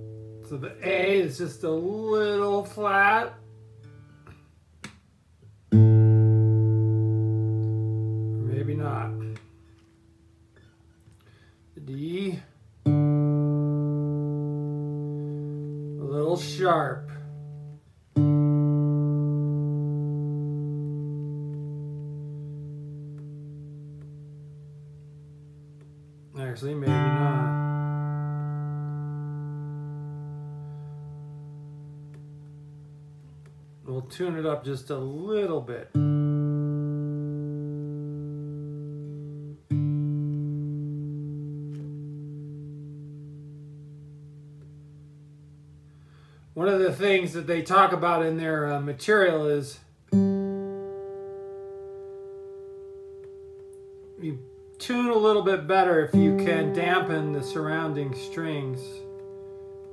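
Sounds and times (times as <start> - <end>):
acoustic guitar string ringing: 5.7 - 11.4, 12.8 - 33.9, 50.1 - 59.9.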